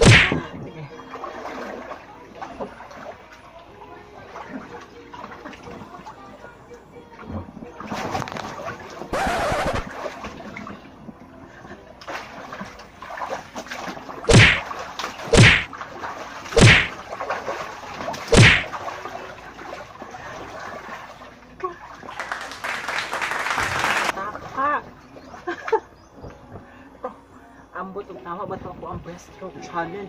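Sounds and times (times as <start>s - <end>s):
water splashing in a pool: 0.0s - 26.0s
water sloshing: 11.7s - 22.6s.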